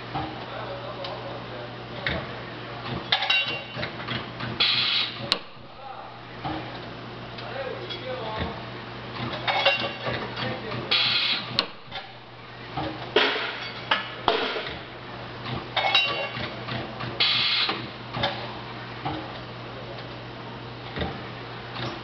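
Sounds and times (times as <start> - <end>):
steady low machine hum: 0.0 - 22.0
clamps clanking and clicking: 2.8 - 4.3, 9.2 - 12.1, 15.5 - 17.1, 18.1 - 18.4.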